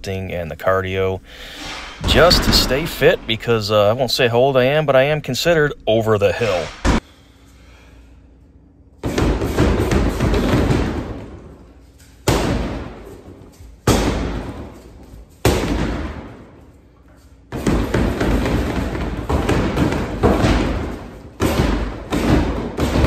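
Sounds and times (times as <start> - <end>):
punches thudding on heavy bag: 17.6 - 23.0.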